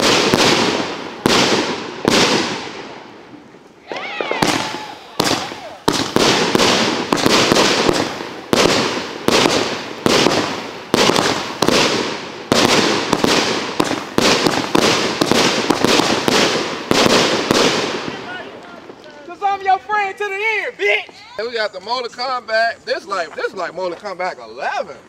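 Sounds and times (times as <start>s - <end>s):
firework cake firing shots: 0.0s - 3.1s, 3.9s - 19.0s
fireworks bursting and crackling: 0.0s - 25.0s.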